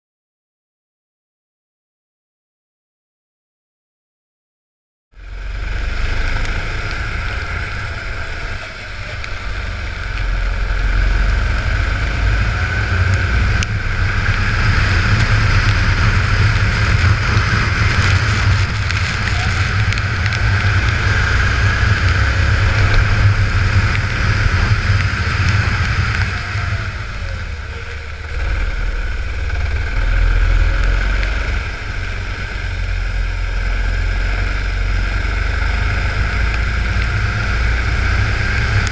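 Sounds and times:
go-kart engine drone: 5.2s - 38.9s
wind buffeting microphone: 6.4s - 27.7s.

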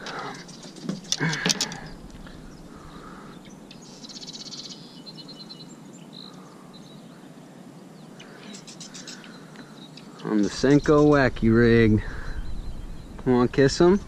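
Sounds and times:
faint steady background noise: 0.0s - 14.0s.

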